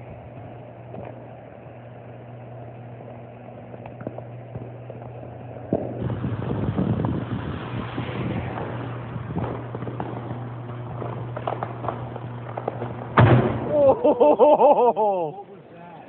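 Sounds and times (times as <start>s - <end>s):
fire crackling: 0.0s - 15.4s
electrical low hum: 0.0s - 16.0s
sharp electrical pop: 5.7s - 13.8s.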